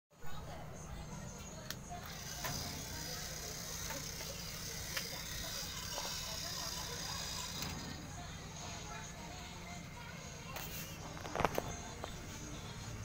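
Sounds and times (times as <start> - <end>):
toy train motors whirring: 2.0 - 8.0.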